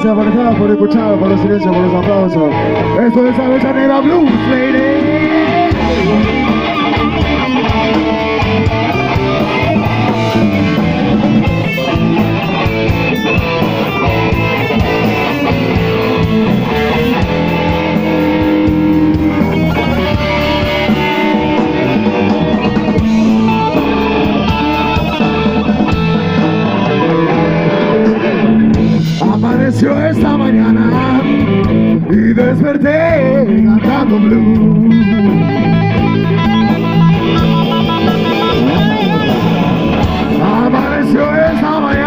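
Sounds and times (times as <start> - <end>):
blues-rock band playing: 0.0 - 42.0.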